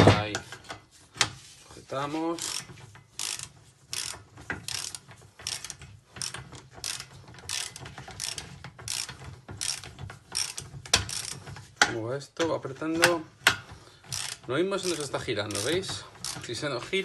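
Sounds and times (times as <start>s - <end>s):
ratchet wrench clicking: 2.4s - 11.4s, 14.1s - 16.6s.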